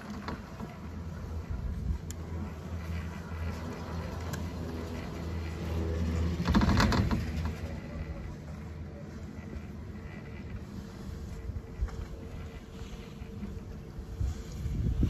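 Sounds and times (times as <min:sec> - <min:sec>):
chairlift grip rattling over sheaves: 0:00.0 - 0:15.0
chairlift low rumble: 0:00.0 - 0:15.0.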